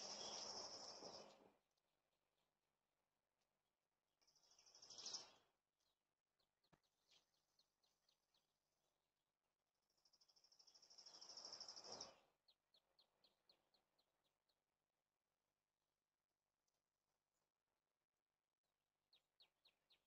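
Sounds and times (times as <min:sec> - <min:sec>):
songbird trilling and chirping: 0:00.0 - 0:01.4, 0:04.3 - 0:05.5, 0:10.0 - 0:14.1.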